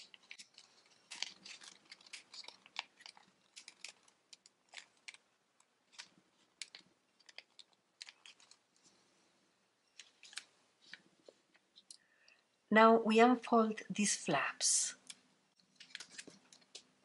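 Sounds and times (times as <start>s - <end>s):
paper being folded: 0.0s - 9.1s, 9.9s - 11.9s, 15.5s - 16.9s.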